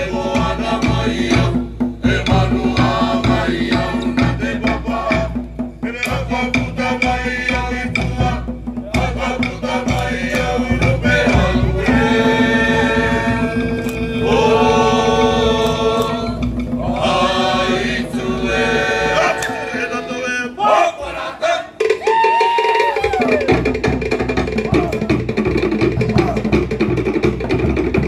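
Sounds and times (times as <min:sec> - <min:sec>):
group chanting long notes: 0:00.0 - 0:22.0
log drums beating: 0:00.0 - 0:28.0.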